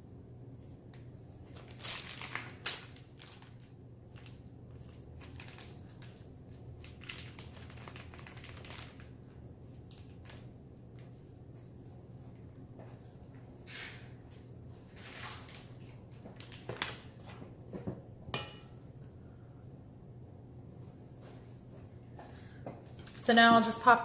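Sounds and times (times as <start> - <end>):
plastic piping bag crinkling: 1.4 - 11.1, 22.8 - 24.0.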